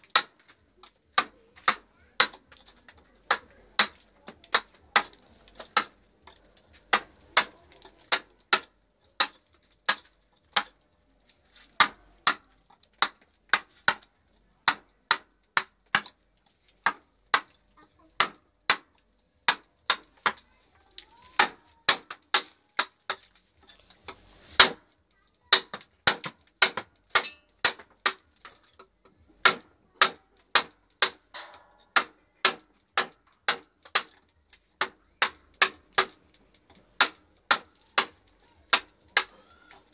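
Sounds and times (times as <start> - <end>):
mallet striking chisel into wood: 3.3 - 5.9, 14.6 - 16.1, 25.5 - 28.6, 29.4 - 34.1.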